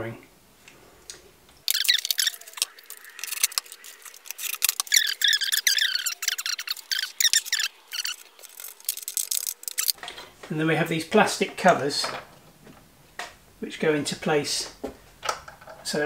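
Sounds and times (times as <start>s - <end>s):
sharp clicks: 1.7s - 10.0s
fast-forwarded speech chatter: 1.8s - 9.9s.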